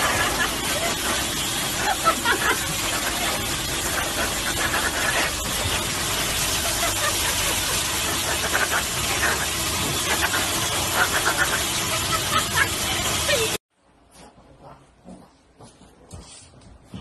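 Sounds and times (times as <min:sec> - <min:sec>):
blower dryer rushing air: 0:00.0 - 0:13.6.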